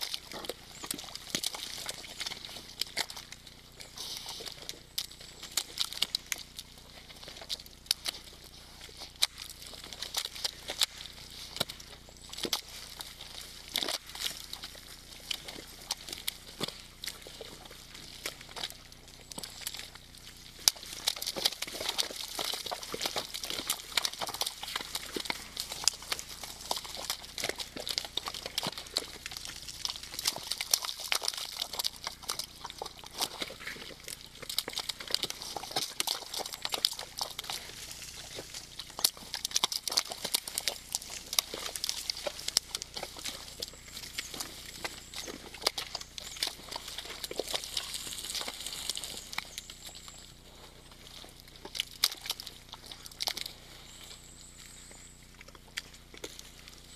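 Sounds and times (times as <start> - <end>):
mud squelching and splashing: 0.0 - 56.9
small clicks and crackles: 0.0 - 56.9.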